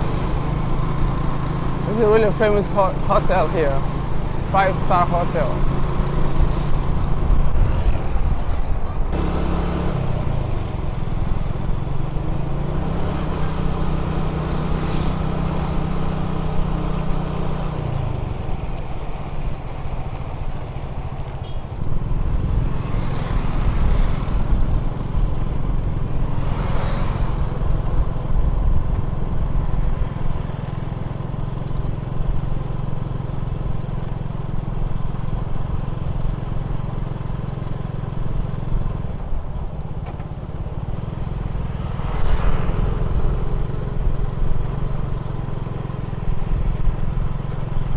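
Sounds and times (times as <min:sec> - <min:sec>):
road noise rushing: 0:00.0 - 0:34.4, 0:35.0 - 0:47.9
motorcycle engine running: 0:00.0 - 0:47.9.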